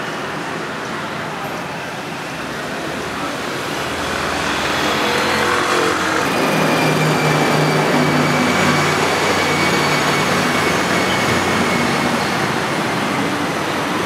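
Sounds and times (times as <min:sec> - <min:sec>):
city street traffic: 0:00.0 - 0:14.0.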